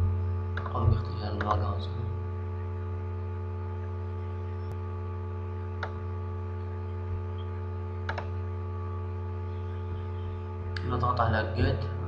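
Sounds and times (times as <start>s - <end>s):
steady low hum: 0.0s - 12.0s
computer mouse clicks: 5.8s - 6.0s, 8.0s - 8.4s.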